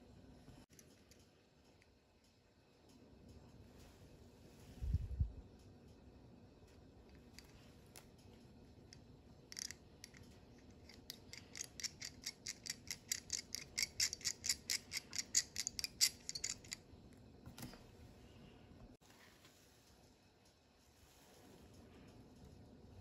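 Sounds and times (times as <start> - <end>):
hand drill bit clicking: 9.5 - 16.8.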